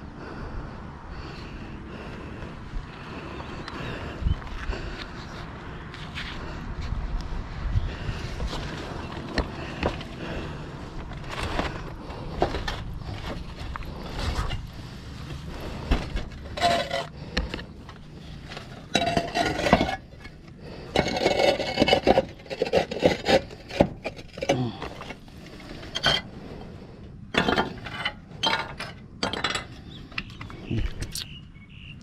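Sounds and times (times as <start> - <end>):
roof tiles scraping together: 11.2 - 17.6, 18.4 - 26.7.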